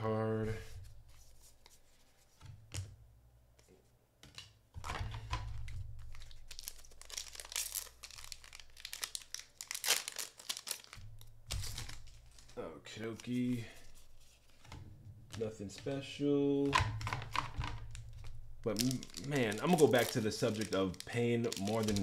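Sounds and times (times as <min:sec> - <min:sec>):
foil wrapper tearing and crinkling: 0:06.0 - 0:12.6, 0:17.0 - 0:22.0.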